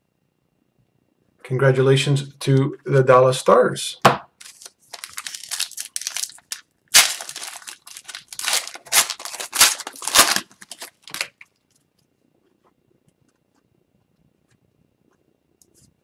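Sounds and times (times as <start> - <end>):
foil wrapper tearing and crinkling: 4.4 - 11.5.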